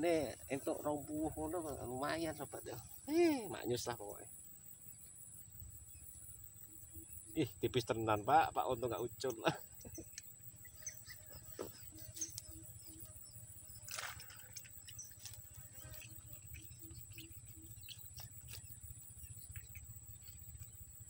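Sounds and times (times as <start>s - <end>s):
animal repeating low notes: 14.2s - 21.0s.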